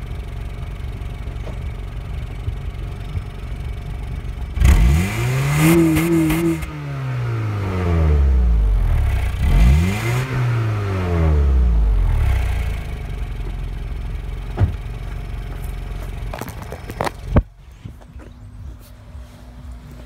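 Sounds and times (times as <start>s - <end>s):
car engine revving and idling: 0.0s - 20.0s.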